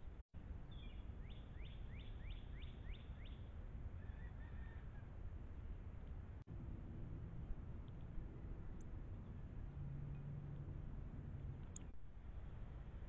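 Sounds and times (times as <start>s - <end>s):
bird whistling song: 0.7s - 3.5s.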